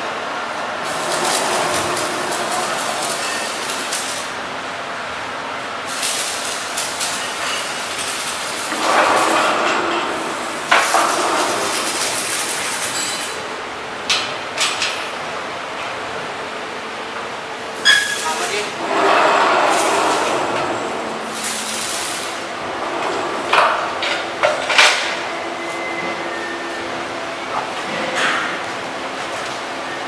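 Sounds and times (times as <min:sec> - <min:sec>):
workshop noise: 0:00.0 - 0:30.0
metal clattering and rolling: 0:00.8 - 0:04.3, 0:05.9 - 0:13.5.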